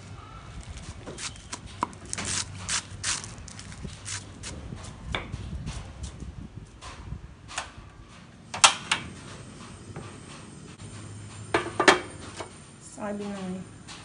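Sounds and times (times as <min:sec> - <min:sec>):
gas burner lighting: 0:06.7 - 0:14.0.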